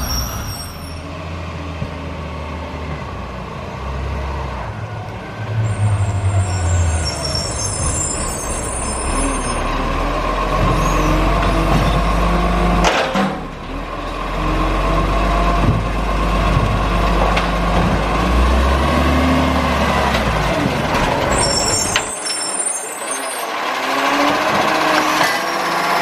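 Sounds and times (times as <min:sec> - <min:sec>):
faint high squeals: 0:00.0 - 0:01.1, 0:05.6 - 0:09.8, 0:10.7 - 0:11.3, 0:21.3 - 0:23.5
diesel engine running: 0:01.4 - 0:22.1.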